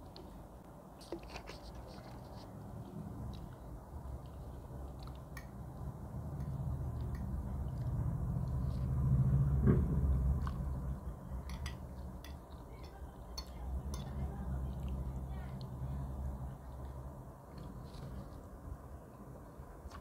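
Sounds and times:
wet chewing and slurping: 0:01.0 - 0:09.4, 0:10.0 - 0:12.8.

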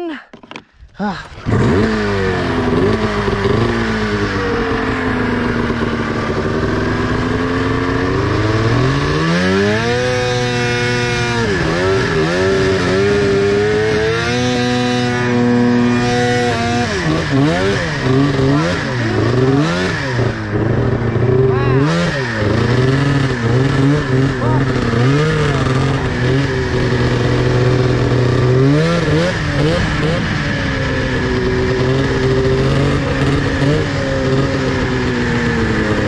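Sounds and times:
snowmobile engine revving: 0:01.1 - 0:36.0.

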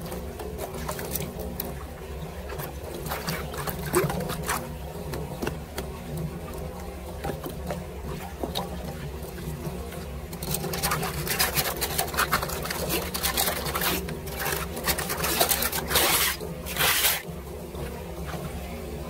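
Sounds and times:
floodwater splashing and sloshing: 0:00.0 - 0:18.8
tool scraping metal grate: 0:11.1 - 0:17.2.

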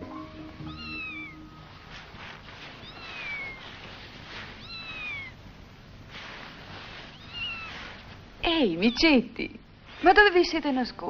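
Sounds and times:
cat meowing: 0:00.6 - 0:01.8, 0:02.6 - 0:05.5, 0:07.1 - 0:08.1.

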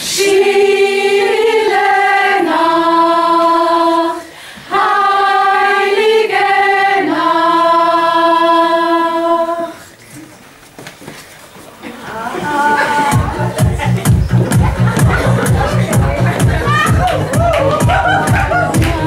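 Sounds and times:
choir singing in harmony: 0:00.0 - 0:09.9.

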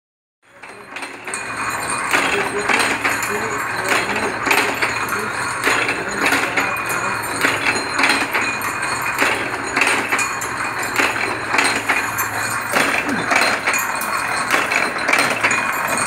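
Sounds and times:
machine metallic clanking: 0:00.5 - 0:16.0
steady motor hum: 0:00.6 - 0:16.0.

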